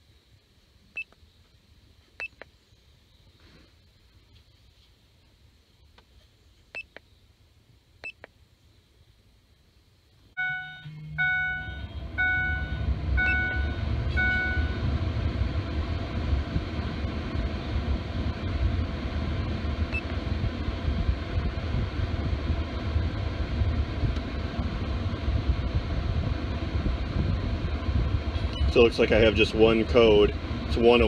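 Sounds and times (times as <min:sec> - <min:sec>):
low rumbling cab noise: 0:00.0 - 0:31.0
dashboard warning chime dinging: 0:10.4 - 0:14.9, 0:28.5 - 0:28.8.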